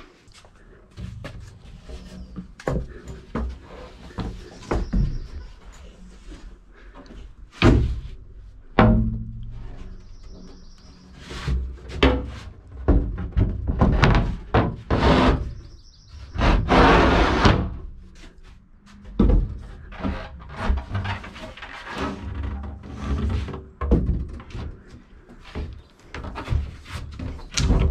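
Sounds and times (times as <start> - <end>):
faint birds chirping: 0.5 - 7.5, 9.4 - 11.8, 15.4 - 16.4, 24.7 - 27.9
wood scraping: 0.6 - 27.9
plywood thudding against frame: 8.8 - 9.4.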